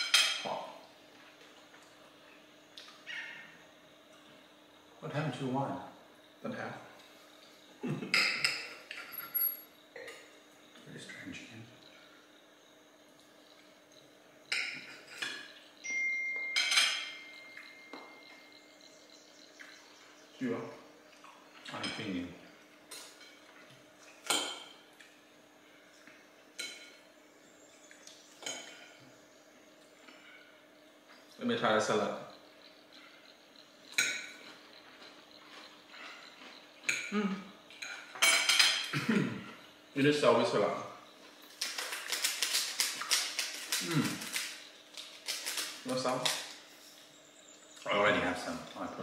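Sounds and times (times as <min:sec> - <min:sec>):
cutlery clinking on plates: 0:00.0 - 0:00.5, 0:08.0 - 0:10.3, 0:14.5 - 0:18.2, 0:37.7 - 0:38.9
cutlery scraping on plates: 0:14.5 - 0:15.5, 0:16.6 - 0:17.2, 0:37.8 - 0:38.9
phone alert chime: 0:15.8 - 0:16.7.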